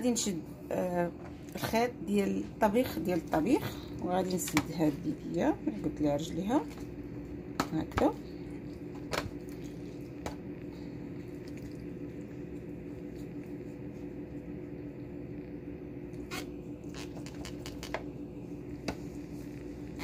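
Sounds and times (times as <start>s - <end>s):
steady low hum: 0.0s - 20.0s
wet squishing of turkey skin: 8.4s - 10.2s, 10.8s - 14.0s.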